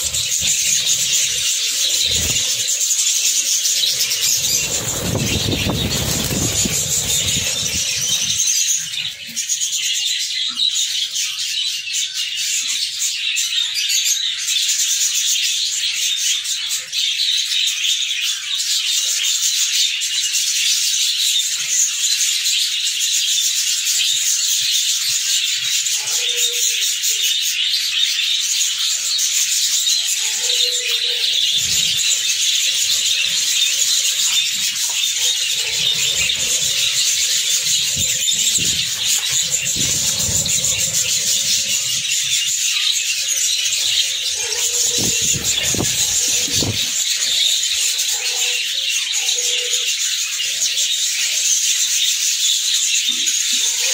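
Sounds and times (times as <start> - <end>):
handling noise rumble: 0.0 - 8.6, 31.5 - 42.5, 43.9 - 47.2
budgerigars chattering: 0.0 - 9.1, 28.6 - 51.4.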